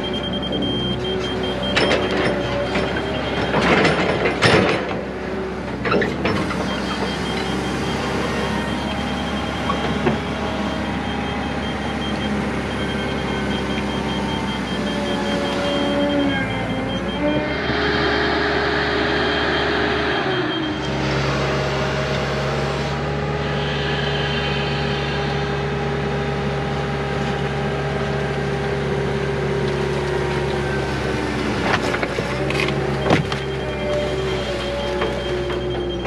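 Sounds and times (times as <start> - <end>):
diesel engine running: 0.0 - 36.0
hydraulic whine: 5.8 - 28.2.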